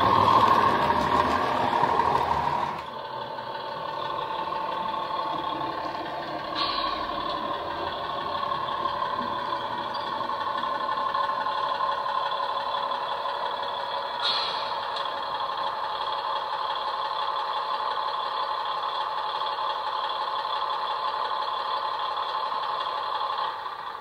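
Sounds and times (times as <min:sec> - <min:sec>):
model train diesel engine running: 0:00.0 - 0:24.0
short hiss: 0:14.2 - 0:14.7.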